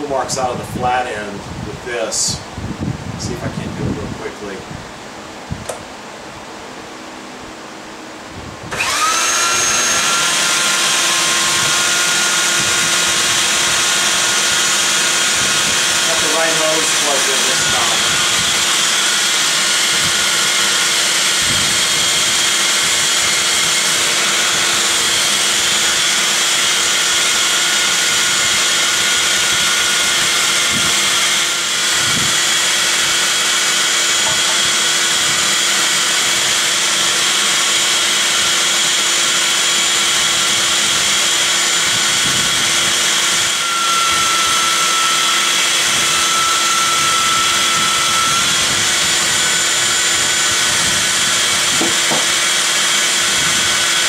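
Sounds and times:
sander whine on wood: 0.0 - 54.0
belt sander running: 6.9 - 54.0
vacuum hose hiss: 8.7 - 35.6.

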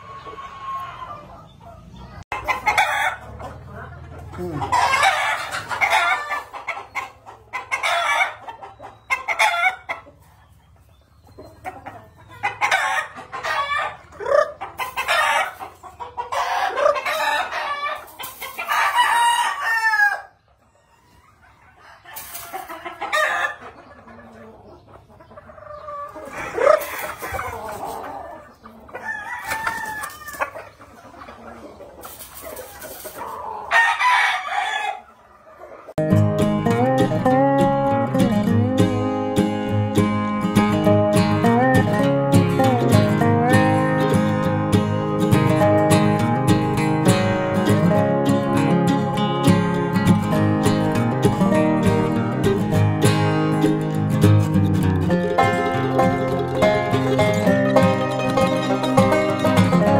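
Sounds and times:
roosters crowing: 0.0 - 10.3, 11.7 - 24.5, 25.6 - 36.0, 55.0 - 59.9
chickens clucking: 0.0 - 59.9.

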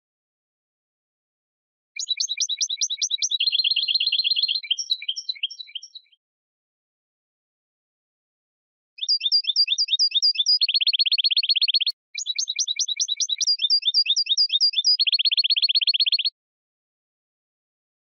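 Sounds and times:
goldfinch singing: 2.0 - 6.2, 9.0 - 16.3.

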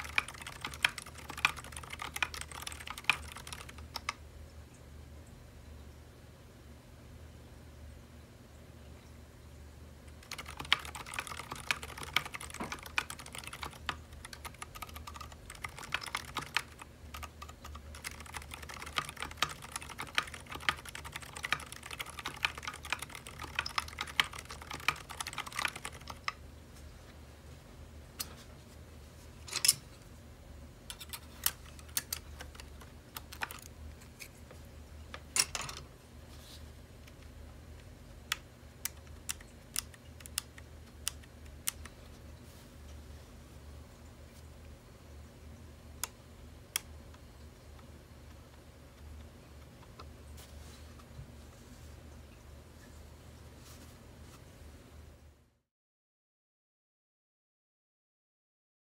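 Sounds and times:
typing on a keyboard: 0.0 - 4.2, 10.1 - 26.4, 30.9 - 33.8, 38.3 - 42.0.

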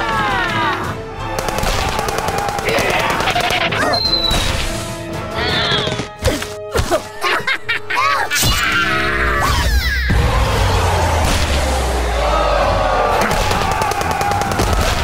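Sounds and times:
background music: 0.0 - 15.0
cartoon rapid gunfire: 1.4 - 3.9, 13.2 - 15.0.

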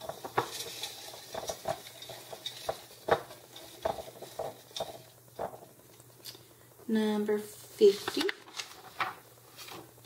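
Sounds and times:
paper slips rustling: 7.8 - 10.0.

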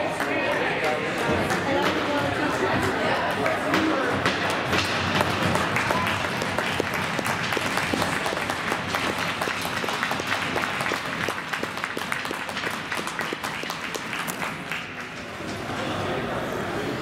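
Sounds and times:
crowd applauding: 4.4 - 15.3.

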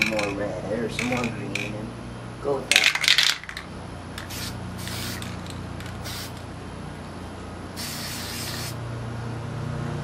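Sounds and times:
spray can hissing: 4.2 - 6.4, 7.8 - 8.8.

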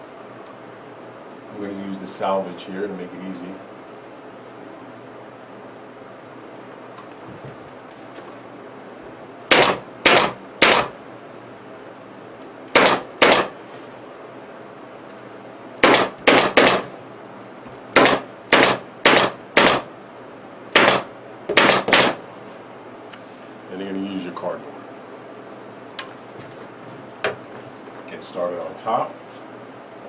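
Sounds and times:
pneumatic staple gun shots: 9.5 - 11.0, 12.7 - 13.6, 15.8 - 16.9, 17.9 - 19.9, 20.8 - 22.2.

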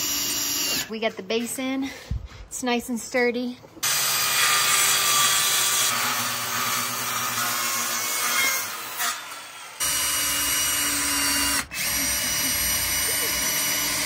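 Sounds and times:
cordless drill running: 0.0 - 0.9, 9.8 - 14.0.

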